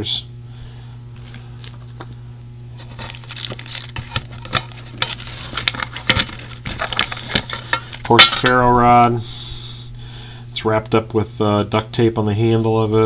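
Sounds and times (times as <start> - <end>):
low hum: 0.0 - 13.0
rummaging in metal tin: 2.8 - 8.6.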